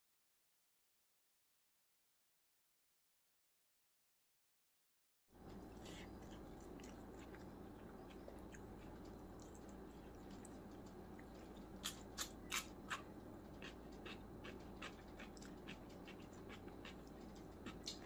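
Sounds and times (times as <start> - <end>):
steady low hum: 5.3 - 18.0
person chewing rice: 5.4 - 18.0.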